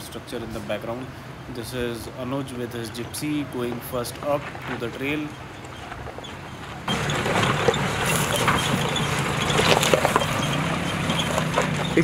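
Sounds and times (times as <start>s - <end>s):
vehicle engine under load: 0.0s - 12.0s
tyres crunching over stones: 3.2s - 12.0s.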